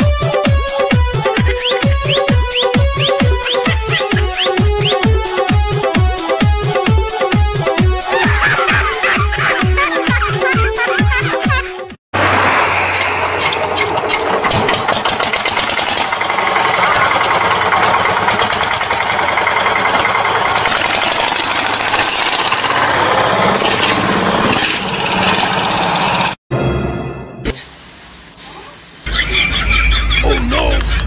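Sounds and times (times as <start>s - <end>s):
small engine running loudly: 0.1s - 8.5s, 12.2s - 26.4s.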